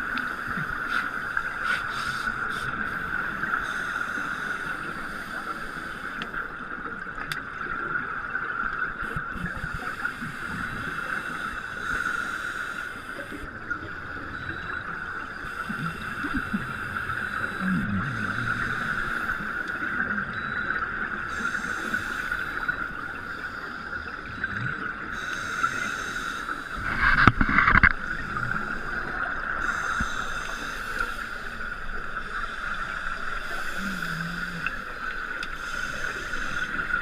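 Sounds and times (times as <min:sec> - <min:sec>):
steady underwater whine: 0:00.0 - 0:37.0
scuba regulator exhaust bubbles: 0:24.0 - 0:37.0.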